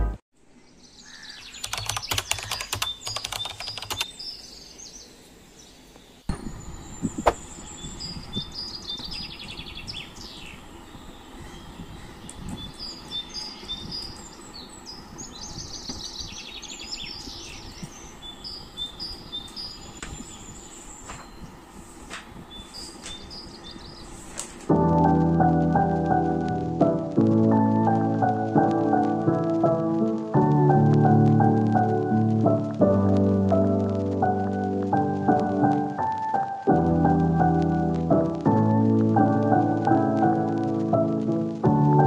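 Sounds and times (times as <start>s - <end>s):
small birds chirping and twittering: 0.5s - 24.7s
rapid clicks: 1.6s - 4.1s.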